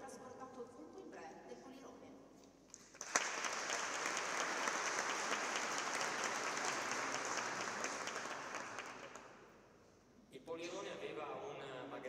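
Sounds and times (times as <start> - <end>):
audience applauding: 2.7 - 9.4.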